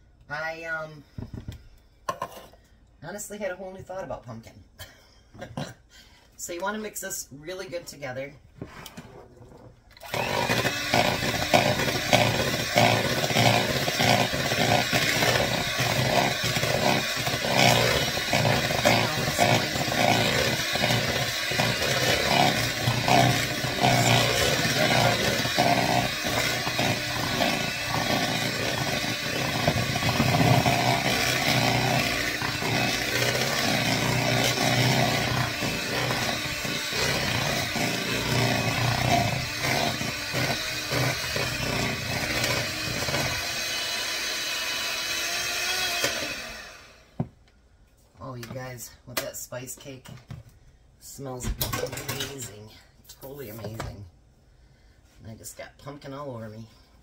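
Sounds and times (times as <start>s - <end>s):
electric hand mixer running: 10.0s - 47.2s.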